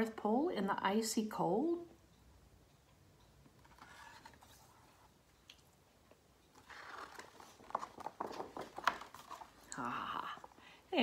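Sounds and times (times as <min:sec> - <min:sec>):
page lifted and turned: 0:03.6 - 0:05.0, 0:06.6 - 0:09.7
paper rustling and crinkling: 0:03.6 - 0:05.0, 0:06.6 - 0:09.7.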